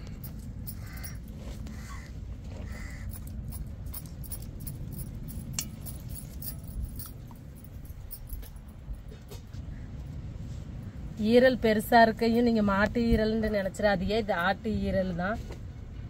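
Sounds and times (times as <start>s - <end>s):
bangles clinking: 0.0s - 1.8s, 2.7s - 9.1s
steady low rumble: 0.0s - 16.0s.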